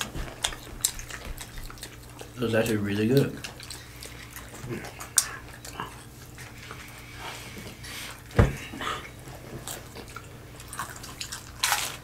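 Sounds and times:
chewing: 0.0s - 8.3s, 8.9s - 12.0s
loud thump: 8.4s - 8.6s
crunching hard taco shells: 9.7s - 12.0s.

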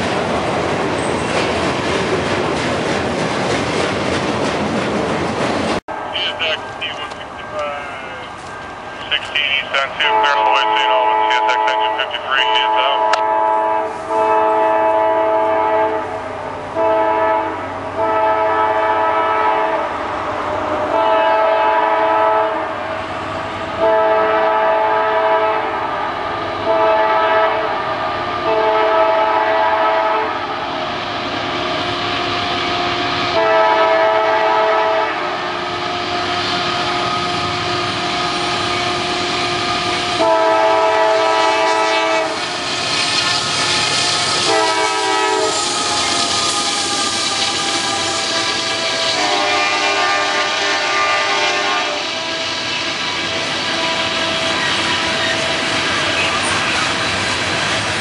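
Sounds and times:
train rumble: 0.0s - 58.0s
locomotive air horn blasts: 9.5s - 19.9s, 20.8s - 22.8s, 23.8s - 27.8s, 28.4s - 30.4s, 32.3s - 42.4s, 44.2s - 55.2s.

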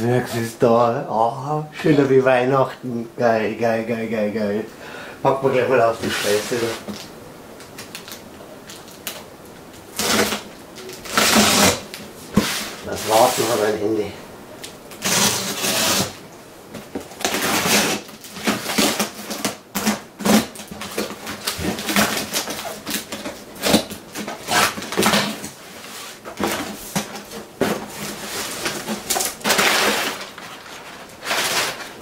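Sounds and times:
packing paper rustling: 5.9s - 32.0s
packing tape tearing: 6.0s - 13.7s, 14.6s - 16.2s, 16.8s - 32.0s.

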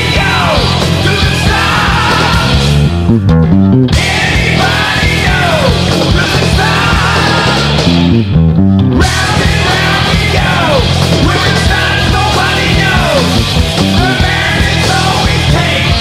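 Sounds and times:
heavy metal band playing: 0.0s - 16.0s.

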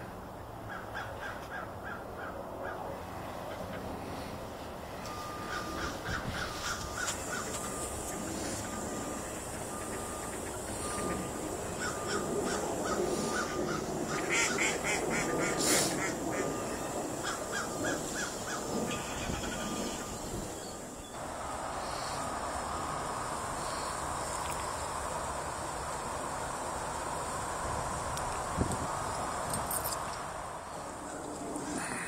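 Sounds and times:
geese honking: 5.2s - 20.6s.

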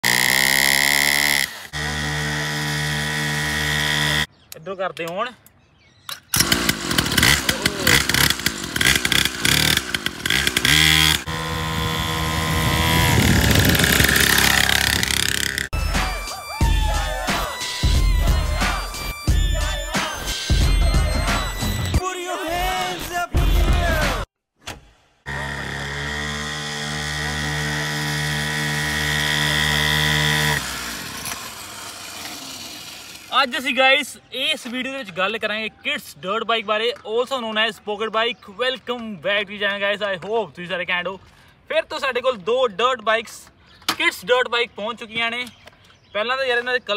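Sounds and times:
small two-stroke engine revving: 0.0s - 4.3s, 6.4s - 15.8s, 25.3s - 33.3s.

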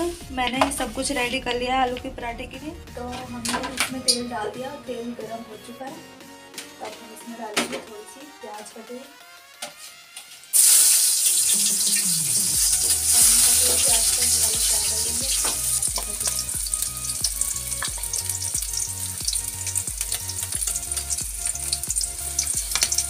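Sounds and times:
onion sizzling in hot oil: 8.6s - 23.0s.

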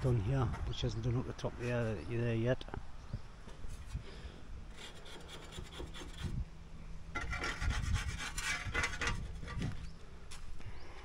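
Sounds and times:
hand sanding a wall: 4.7s - 6.4s, 7.2s - 9.1s.

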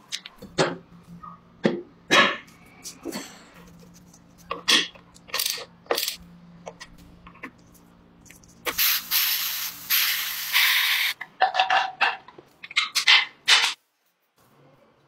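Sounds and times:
compressed air hissing into tyre: 8.7s - 11.2s.

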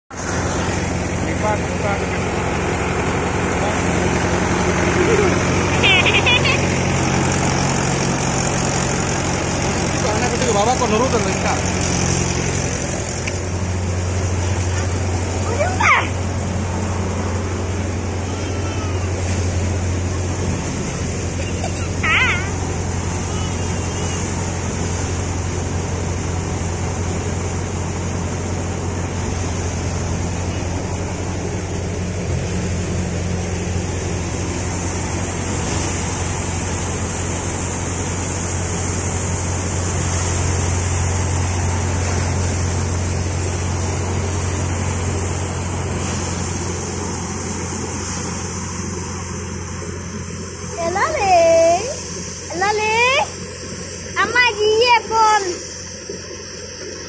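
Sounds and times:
thresher machine drone: 0.1s - 57.0s.

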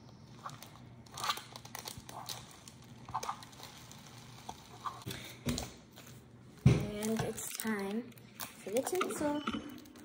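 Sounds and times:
plastic bag rustling and crinkling: 0.3s - 5.1s.

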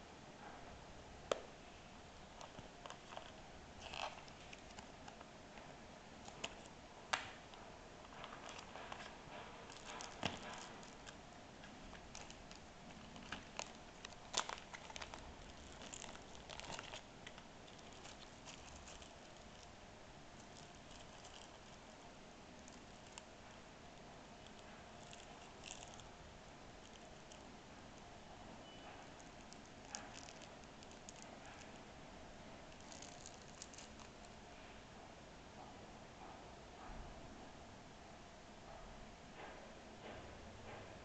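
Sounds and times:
plastic bag crinkling: 2.4s - 5.2s, 8.0s - 23.6s, 24.4s - 26.2s, 26.8s - 27.5s, 29.0s - 31.8s, 32.6s - 34.4s.

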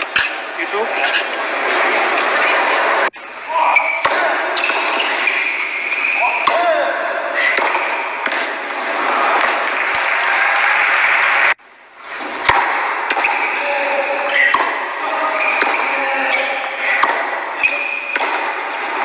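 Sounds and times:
crowd hubbub: 0.0s - 6.4s, 7.0s - 11.6s
racket hitting ball: 3.8s - 10.0s, 12.4s - 19.0s.

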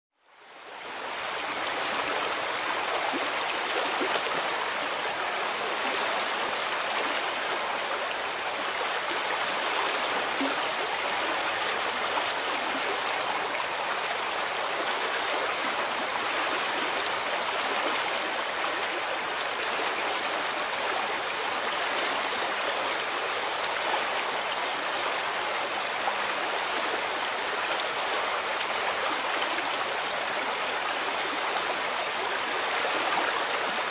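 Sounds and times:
stream rushing: 0.3s - 33.9s
kingfisher shrill calls: 3.0s - 3.6s, 4.4s - 5.0s, 5.9s - 6.2s, 28.3s - 30.4s.

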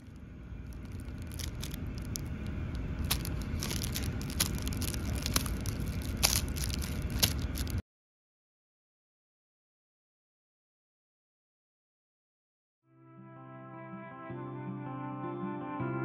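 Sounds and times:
low steady rumble: 0.0s - 7.8s
plastic wrappers crinkling: 0.0s - 7.8s.

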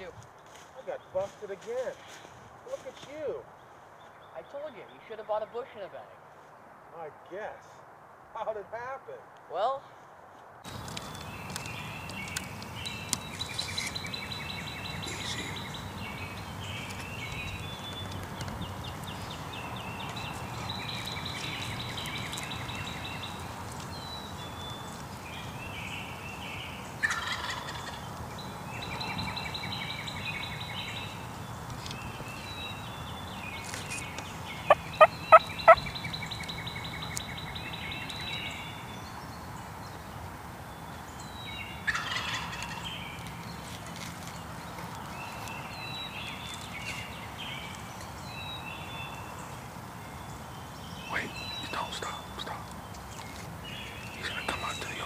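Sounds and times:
songbirds singing: 0.0s - 6.2s, 10.6s - 55.0s
turkey calling: 27.0s - 28.0s, 34.6s - 36.0s, 41.9s - 42.8s
turkey yelping: 27.0s - 28.0s, 34.7s - 35.8s, 41.9s - 42.8s.

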